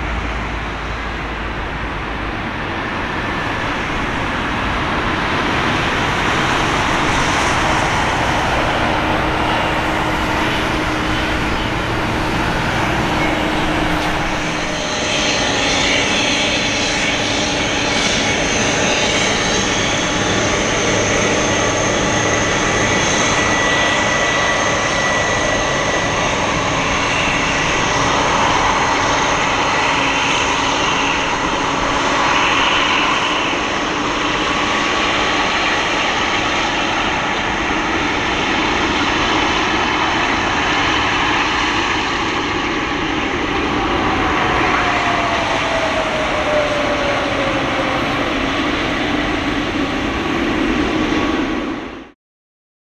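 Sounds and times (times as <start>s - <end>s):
faint high engine whine: 0.0s - 52.2s
jet engine roar: 0.0s - 52.2s.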